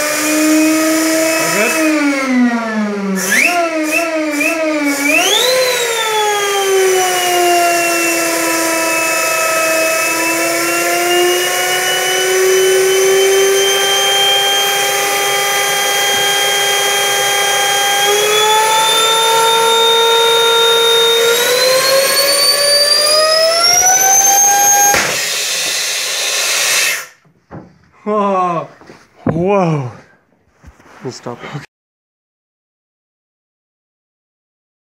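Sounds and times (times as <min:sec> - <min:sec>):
turbine whining at high speed: 0:00.0 - 0:27.2
sharp crack of blades bursting: 0:24.0 - 0:27.2.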